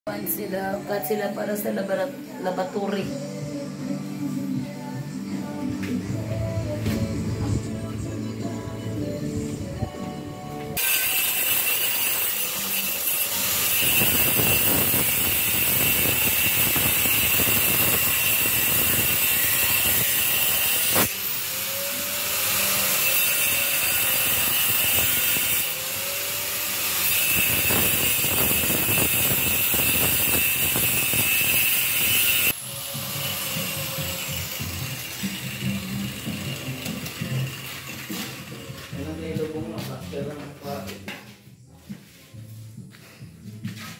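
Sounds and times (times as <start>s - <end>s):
angle grinder grinding concrete: 10.5s - 40.5s.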